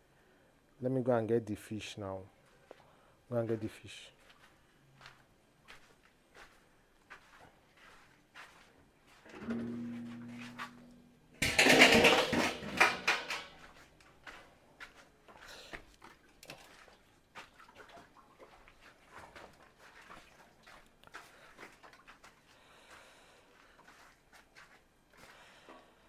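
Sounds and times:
steel basin clattering: 0:09.3 - 0:13.9.

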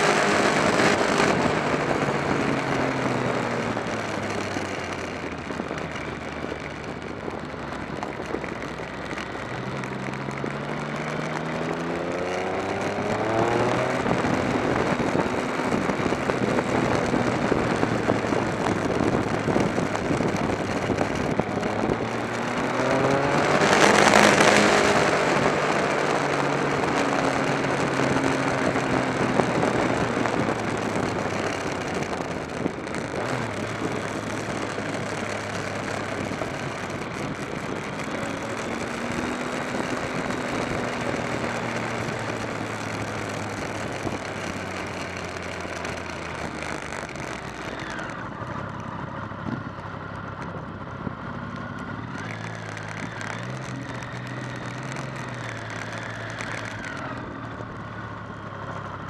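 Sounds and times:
motorcycle engine accelerating: 0:00.0 - 0:59.0
wind rush: 0:11.8 - 0:44.8.

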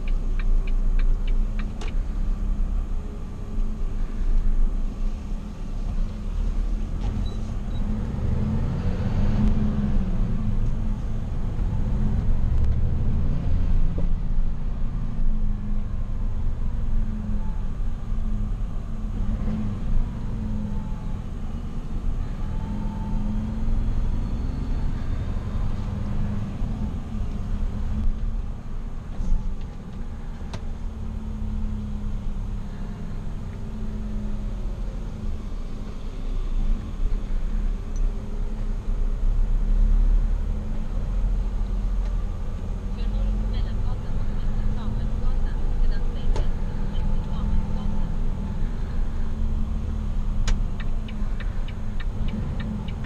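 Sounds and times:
truck diesel engine rumble: 0:00.0 - 0:53.0.

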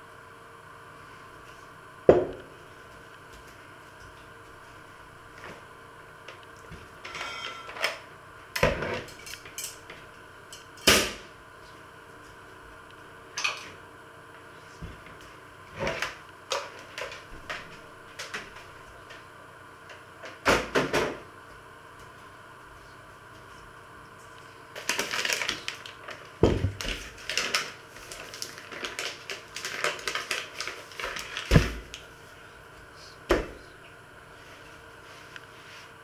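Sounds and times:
thumps on wooden worktop: 0:02.1 - 0:02.4.

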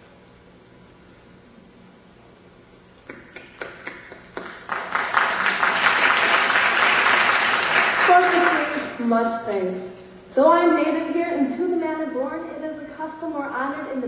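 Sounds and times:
faint room hum: 0:00.0 - 0:14.0
audience applauding: 0:03.1 - 0:09.0.

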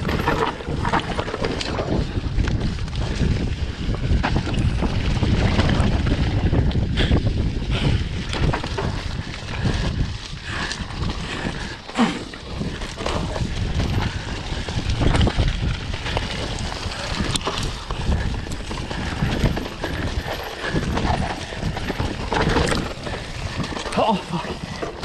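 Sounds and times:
knocks and clatter: 0:00.0 - 0:02.0.

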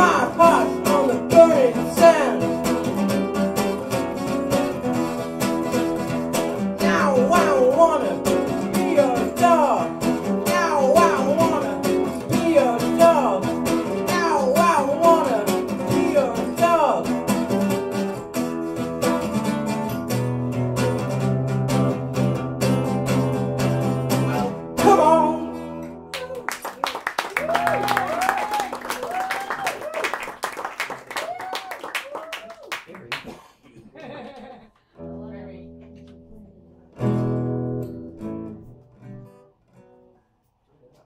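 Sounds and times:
man singing: 0:00.0 - 0:03.0, 0:06.6 - 0:17.6, 0:24.2 - 0:25.8
acoustic guitar strumming: 0:00.0 - 0:26.4, 0:35.0 - 0:40.3.

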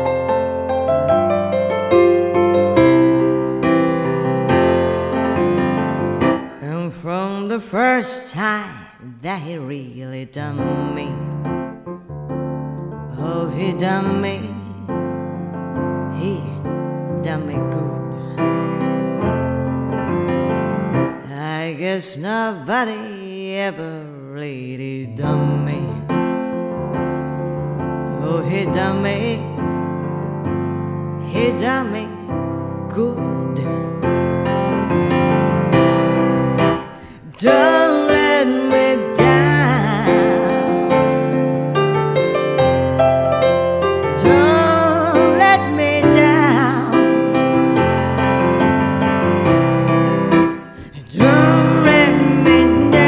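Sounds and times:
pitch-bending melody line: 0:00.0 - 0:06.6, 0:34.4 - 0:53.0
electric piano chords: 0:00.0 - 0:07.3, 0:10.6 - 0:21.4, 0:25.2 - 0:53.0.

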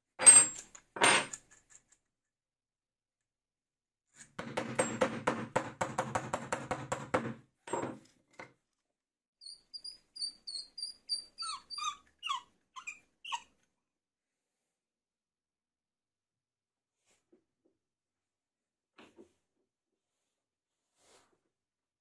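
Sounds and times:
short squeaks: 0:09.4 - 0:13.5.

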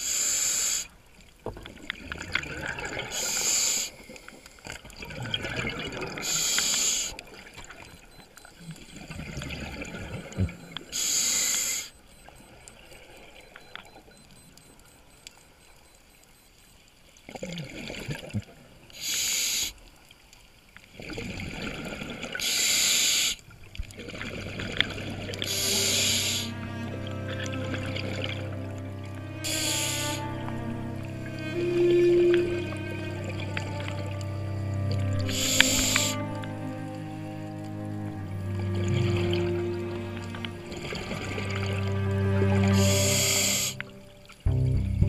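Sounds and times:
regulator inhalation hiss: 0:00.0 - 0:00.9, 0:03.1 - 0:04.0, 0:06.2 - 0:07.2, 0:10.9 - 0:12.0, 0:19.0 - 0:19.8, 0:22.4 - 0:23.4, 0:25.5 - 0:26.8, 0:29.3 - 0:30.7, 0:35.2 - 0:36.3, 0:42.7 - 0:43.9.

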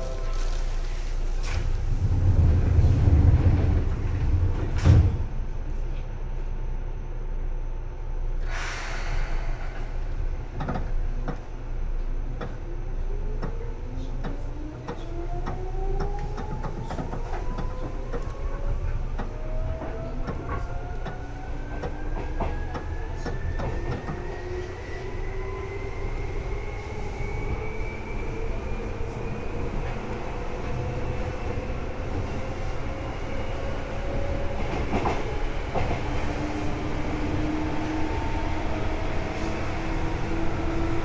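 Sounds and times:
low train rumble: 0:00.0 - 0:41.0
air hiss: 0:08.4 - 0:10.0.

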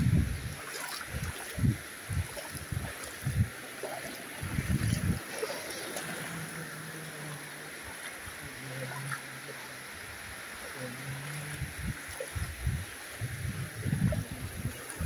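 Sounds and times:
bare feet splashing in water: 0:00.0 - 0:09.3
shallow water washing: 0:00.0 - 0:15.0.

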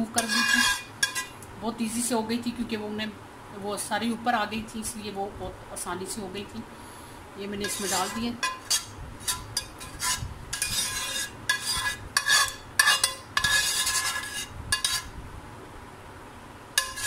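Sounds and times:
metal spoon scraping baking dish: 0:00.0 - 0:01.4, 0:07.5 - 0:15.1, 0:16.8 - 0:17.0.

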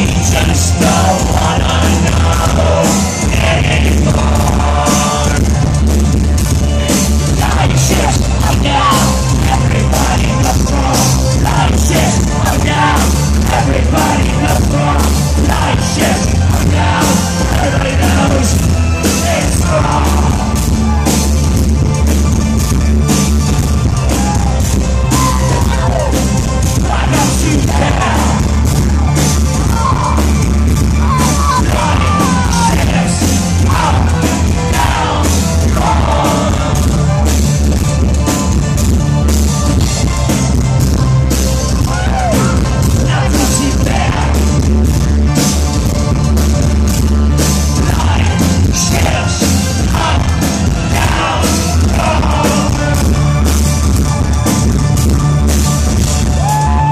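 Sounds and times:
person singing: 0:00.0 - 0:05.8, 0:06.7 - 0:20.6, 0:24.2 - 0:37.3, 0:41.9 - 0:44.5, 0:47.8 - 0:53.3
industrial band playing live: 0:00.0 - 0:56.9.

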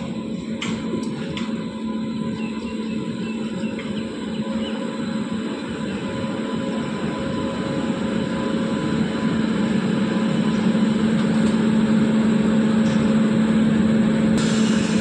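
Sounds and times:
electric locomotive humming: 0:00.0 - 0:15.0
hiss: 0:14.4 - 0:15.0.

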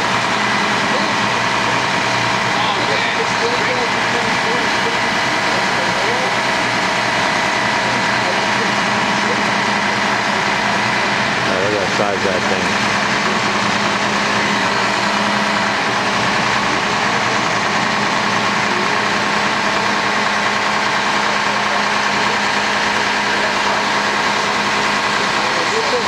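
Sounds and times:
diesel truck engine running: 0:00.0 - 0:26.0.

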